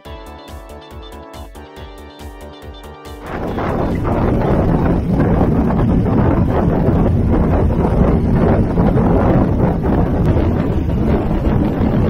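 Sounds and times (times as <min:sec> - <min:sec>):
boat and water rushing: 0:03.2 - 0:12.0
wind buffeting microphone: 0:03.2 - 0:12.0.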